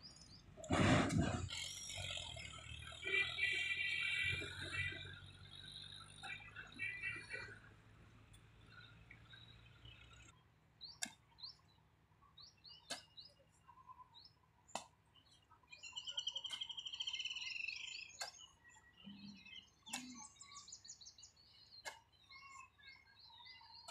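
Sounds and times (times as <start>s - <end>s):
birds chirping: 0.0s - 23.9s
hoe striking dry soil: 0.6s - 1.6s, 12.8s - 13.3s, 18.2s - 18.5s
bird trill: 1.5s - 7.7s, 15.2s - 23.9s.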